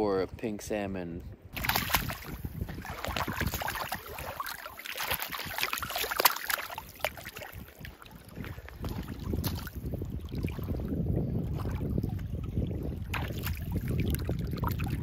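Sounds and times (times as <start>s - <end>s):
fish splashing in shallow water: 1.5s - 15.0s.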